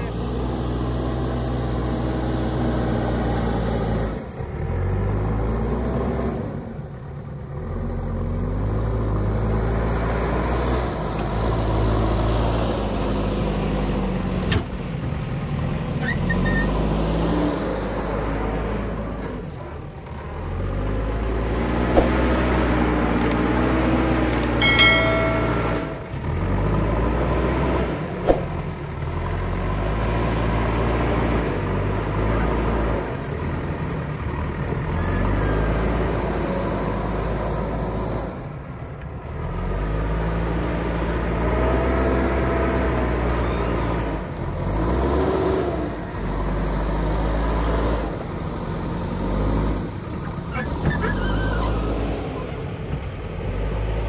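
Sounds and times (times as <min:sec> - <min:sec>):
diesel engine revving under load: 0:00.1 - 0:24.6, 0:26.0 - 0:54.0.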